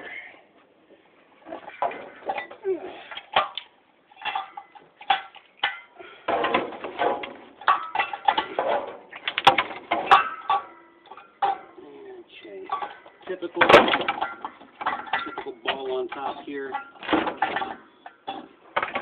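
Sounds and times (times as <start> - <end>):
metal knocks and clatter: 3.2 - 11.8, 12.6 - 19.0.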